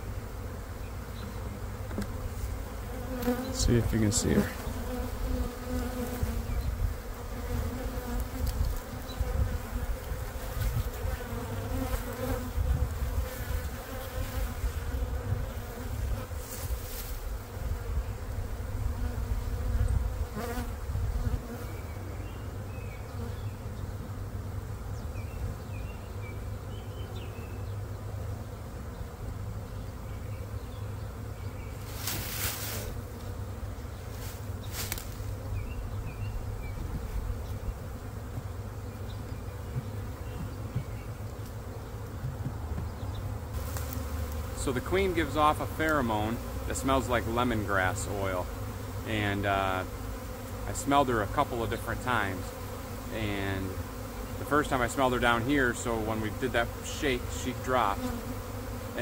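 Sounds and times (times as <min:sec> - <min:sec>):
bee swarm buzzing: 0:00.0 - 0:59.0
brief rustles: 0:34.1 - 0:35.3.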